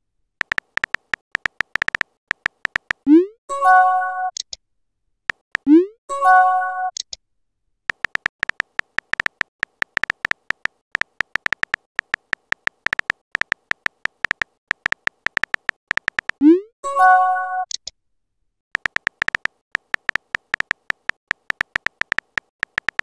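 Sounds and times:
rapid keyboard tapping: 0.4s - 3.0s, 7.9s - 16.4s, 18.8s - 23.0s.

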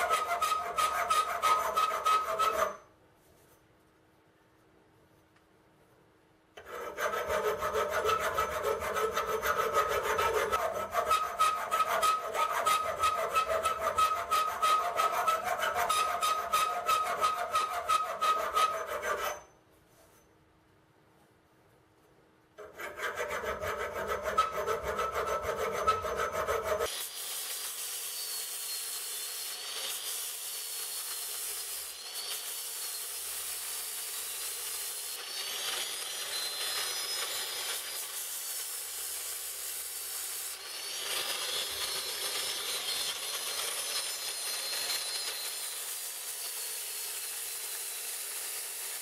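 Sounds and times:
rasping strokes on steel: 0.0s - 2.9s, 6.6s - 20.3s, 22.6s - 49.0s
angle grinder grinding steel: 6.6s - 19.5s.

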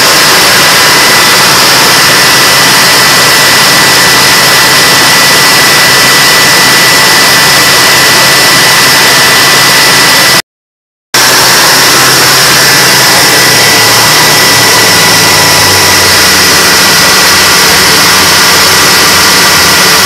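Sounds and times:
diesel generator engines running: 0.0s - 10.4s, 11.2s - 20.0s
high whine: 0.0s - 10.4s, 11.2s - 20.0s.

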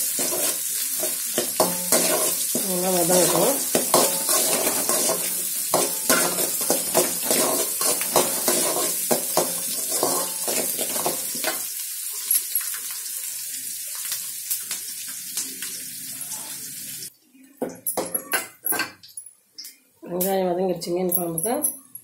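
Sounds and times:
metal spatula scraping a pan: 0.0s - 11.7s
frying sizzle in hot oil: 0.0s - 17.1s.

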